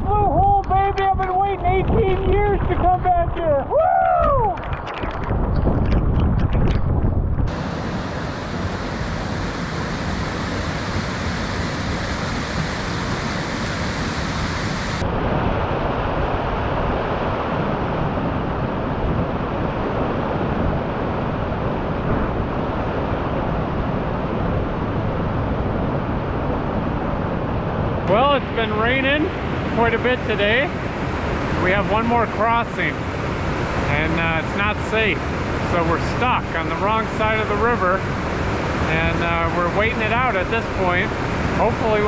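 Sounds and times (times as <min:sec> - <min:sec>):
heavy rain: 0:07.5 - 0:15.0
stream and waterfall rushing: 0:07.5 - 0:15.0, 0:28.0 - 0:42.0.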